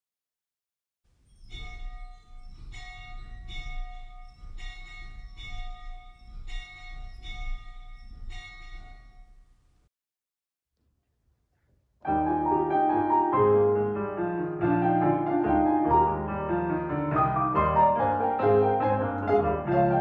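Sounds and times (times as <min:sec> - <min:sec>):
church bell tolling: 0:01.5 - 0:09.4.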